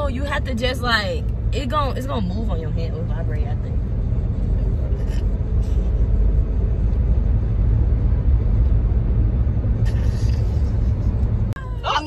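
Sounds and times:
road and engine rumble in car: 0.0s - 12.0s.

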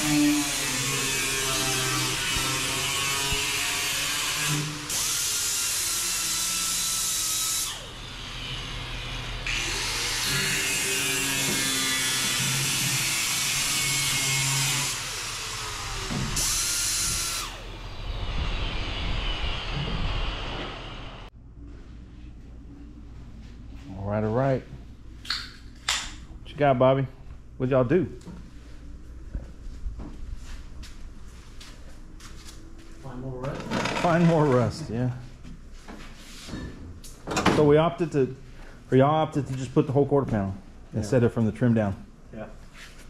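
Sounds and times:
power tool grinding sheet steel: 0.0s - 21.3s.

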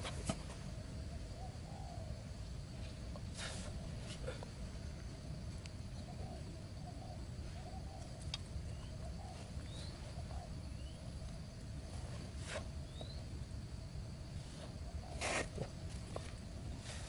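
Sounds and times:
bird chirps: 5.9s - 11.1s, 12.8s - 13.3s.

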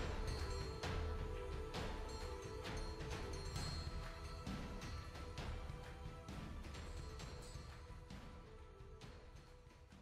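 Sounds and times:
quiet background music: 0.0s - 10.0s.

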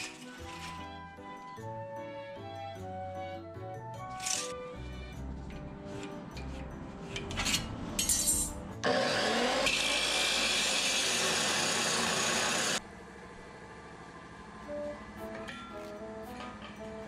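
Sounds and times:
saw grinding through steel: 7.3s - 12.8s.

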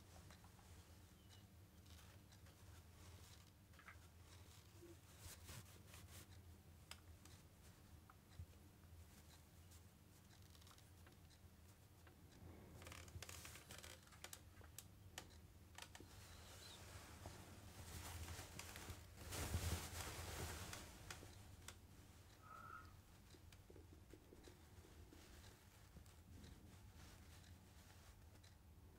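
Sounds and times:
small clicks and scratches: 0.1s - 11.4s, 12.0s - 19.1s, 20.5s - 28.7s
cloth rustling: 15.8s - 21.6s
faint chirp: 22.4s - 23.0s.

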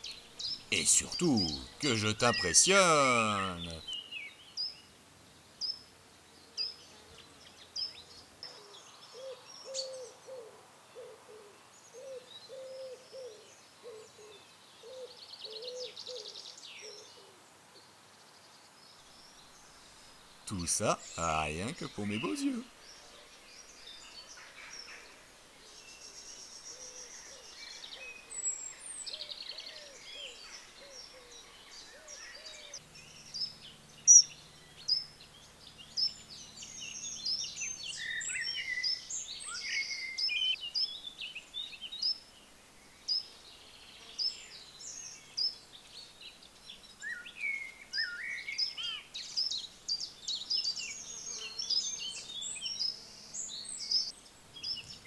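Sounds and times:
songbirds singing and chirping: 0.0s - 17.2s, 17.8s - 55.0s.

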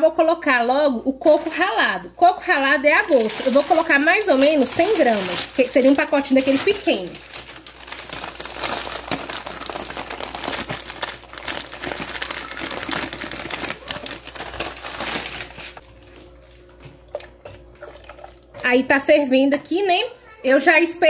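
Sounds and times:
plastic packet crinkling: 2.8s - 16.4s.

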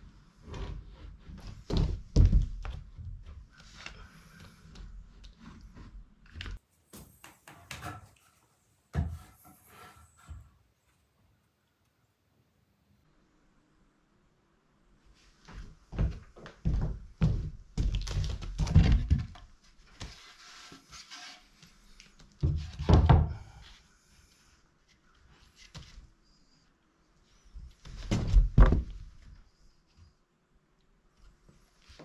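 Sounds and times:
boards scraping on floor: 7.0s - 10.5s, 20.0s - 22.0s.

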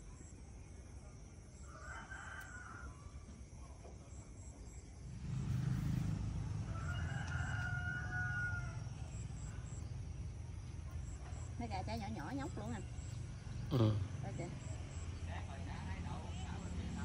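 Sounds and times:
rooster crowing: 1.6s - 3.3s, 6.4s - 9.2s.

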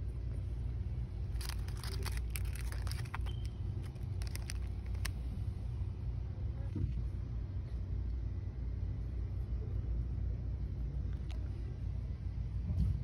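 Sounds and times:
low background hum: 0.0s - 13.0s
plastic bag crinkling: 1.3s - 5.2s.

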